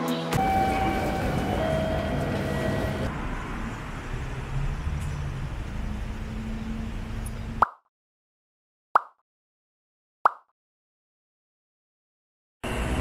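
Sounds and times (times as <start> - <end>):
road traffic rumble: 0.4 - 7.6, 12.6 - 13.0.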